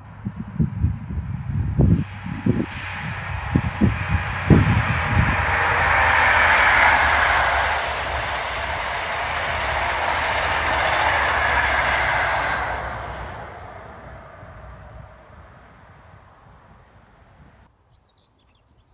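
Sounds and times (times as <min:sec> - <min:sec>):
train passing at speed: 0:01.1 - 0:17.7
low thumps: 0:01.6 - 0:16.7
wheels clickety-clack on rail: 0:03.0 - 0:15.2.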